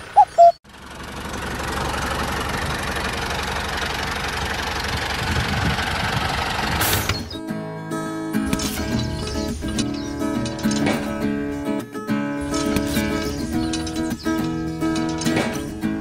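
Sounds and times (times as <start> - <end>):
engine running steadily: 0.0 - 7.4, 8.4 - 11.7, 12.4 - 16.0
short high beeps: 0.2 - 0.6
strummed acoustic guitar music: 7.4 - 16.0.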